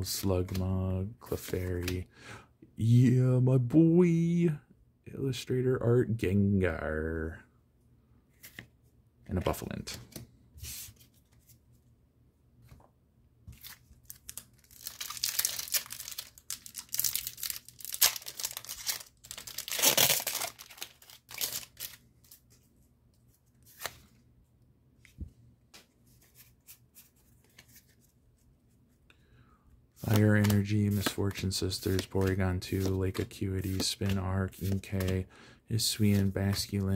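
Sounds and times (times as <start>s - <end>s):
cards clicking and rustling: 1.3s - 2.0s, 13.5s - 22.6s, 30.0s - 36.9s
foil wrapper tearing and crinkling: 14.1s - 22.0s.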